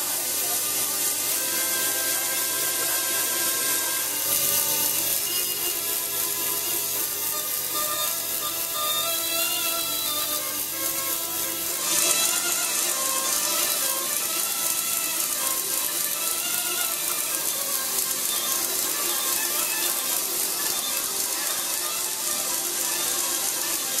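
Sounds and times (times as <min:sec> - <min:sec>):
reed pipe buzzing tone: 0:00.0 - 0:24.0.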